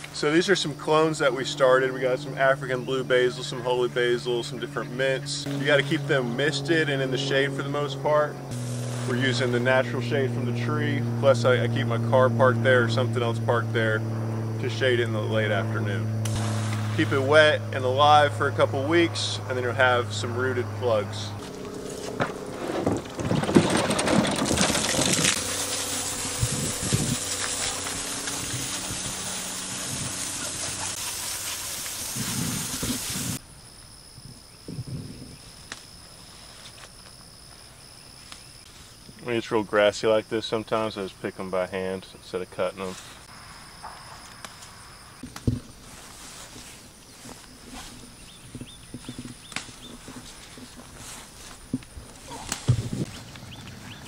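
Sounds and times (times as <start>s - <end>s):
insects buzzing faintly: 0.0s - 23.1s, 24.2s - 54.0s
hose spray nozzle hissing: 8.5s - 9.1s, 25.3s - 33.4s
footsteps in grass: 8.5s - 9.6s, 21.4s - 22.8s, 25.4s - 33.4s, 44.0s - 53.8s
leaves rustling: 8.5s - 10.6s, 16.2s - 19.1s, 21.3s - 33.4s, 35.4s - 39.2s, 42.8s - 54.0s
stems snapping: 49.2s - 50.6s, 51.8s - 53.4s.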